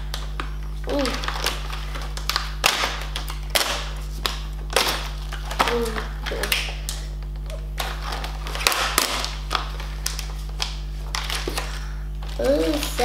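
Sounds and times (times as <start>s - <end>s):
low electrical hum: 0.0s - 13.0s
plastic packaging crinkling: 0.0s - 13.0s.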